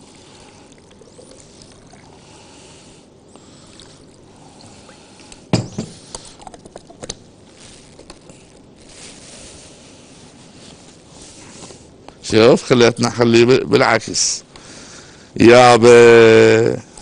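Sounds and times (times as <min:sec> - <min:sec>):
water pouring into blender: 0:00.0 - 0:02.2.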